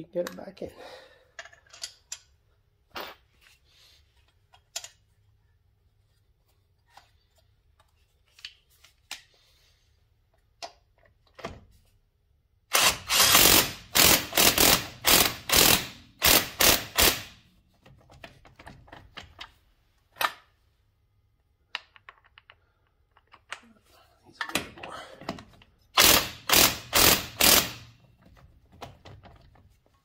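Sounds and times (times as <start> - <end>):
impact wrench bursts: 12.7 - 17.4, 26.0 - 28.0.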